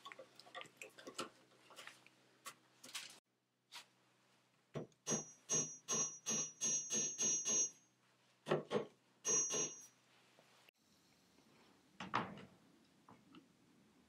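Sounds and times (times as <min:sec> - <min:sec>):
thin high ring: 0:09.3 - 0:10.0.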